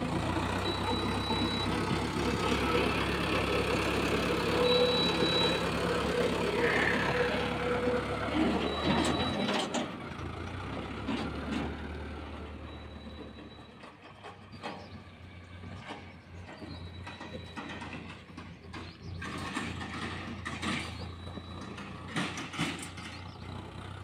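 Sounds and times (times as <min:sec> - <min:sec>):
tractor diesel engine running: 0:00.0 - 0:24.0
short high beep: 0:00.6 - 0:01.7, 0:04.5 - 0:05.6.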